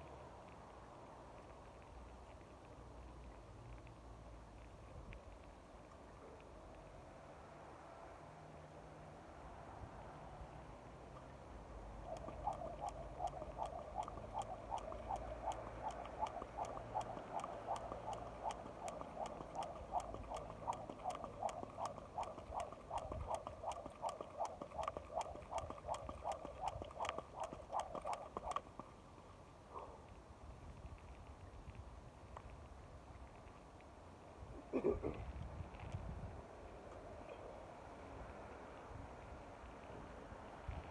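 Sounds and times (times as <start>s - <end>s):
skipping rope slapping ground: 12.0s - 29.0s.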